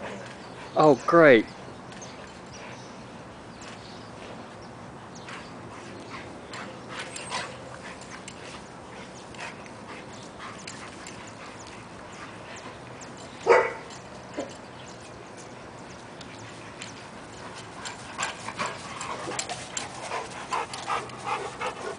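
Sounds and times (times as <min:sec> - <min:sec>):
dogs playing rough: 0:01.6 - 0:21.9
loud dog bark: 0:13.5 - 0:13.8.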